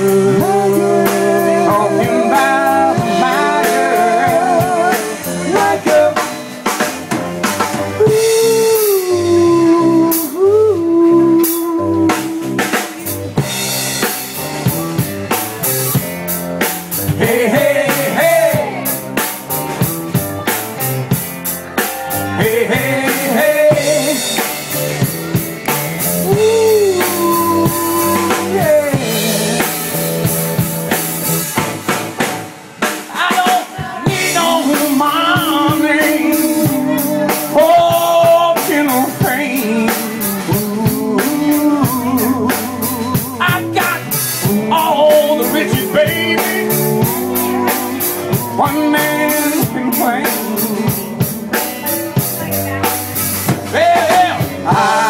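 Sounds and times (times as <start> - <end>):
man singing into microphone: 0.0 - 6.8, 7.9 - 13.1, 17.0 - 19.2, 21.8 - 24.6, 26.2 - 30.4, 33.1 - 52.2, 53.5 - 55.0
live band playing: 0.0 - 55.0.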